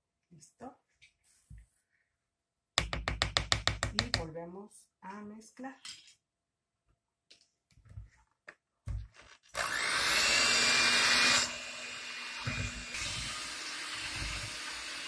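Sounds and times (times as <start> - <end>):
electric hand mixer whirring: 9.6 - 15.0.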